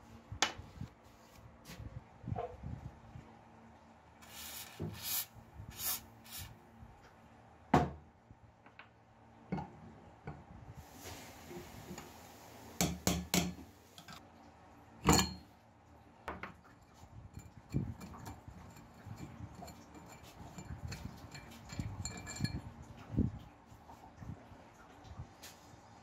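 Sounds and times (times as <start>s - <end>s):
spray lubricant hisses: 4.2s - 6.5s.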